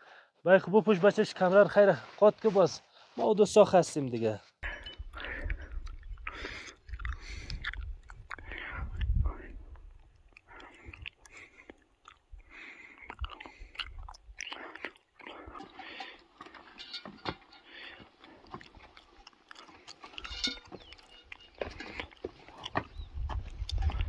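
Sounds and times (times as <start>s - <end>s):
footsteps crunching over rocks: 15.0s - 24.0s.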